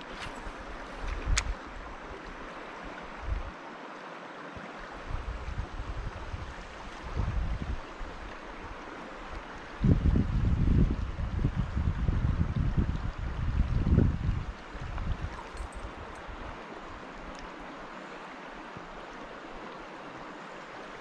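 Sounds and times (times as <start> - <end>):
wind buffeting microphone: 0.0 - 2.2, 5.0 - 8.8, 9.7 - 16.6
flowing river water: 0.0 - 21.0.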